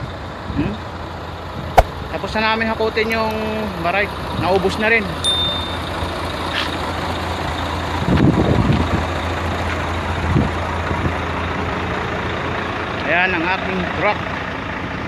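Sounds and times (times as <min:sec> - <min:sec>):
truck engine rumbling: 0:01.0 - 0:13.0.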